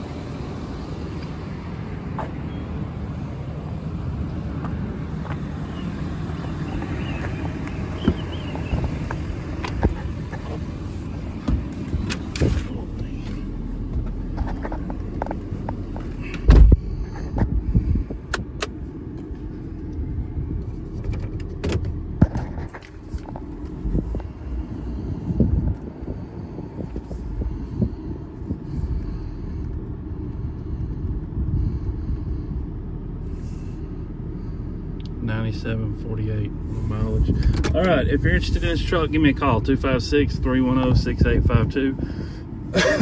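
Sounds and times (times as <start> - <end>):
diesel engine idling: 0.0 - 43.0
thump: 16.4 - 16.8.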